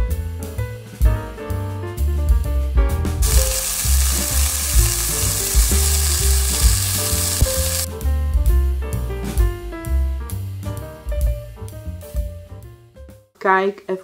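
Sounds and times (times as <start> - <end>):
background music with bass line: 0.0 - 13.2
patties sizzling in a frying pan: 3.2 - 7.9.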